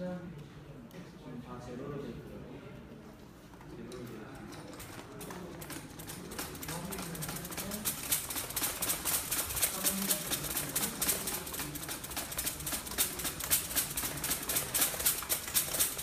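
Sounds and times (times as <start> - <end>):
cart rattling across floor: 4.4 - 16.0.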